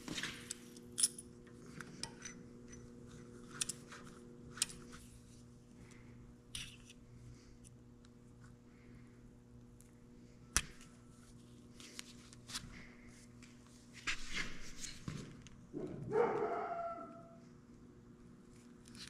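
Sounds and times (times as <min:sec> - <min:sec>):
low steady hum: 0:00.0 - 0:19.0
dog whining: 0:16.1 - 0:17.4.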